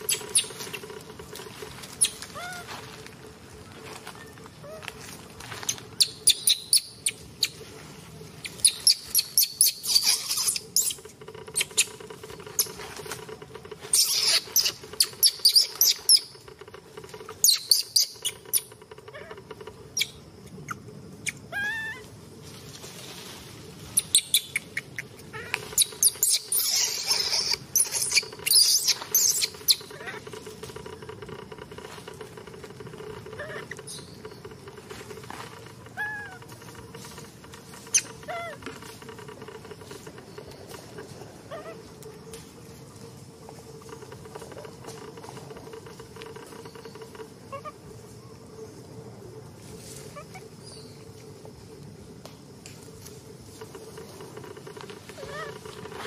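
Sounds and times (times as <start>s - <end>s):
dry leaves crackling: 0.0s - 18.4s, 25.3s - 48.2s, 52.8s - 56.0s
baby monkey squealing: 8.6s - 11.0s, 13.9s - 16.3s, 17.4s - 19.4s, 24.0s - 30.2s.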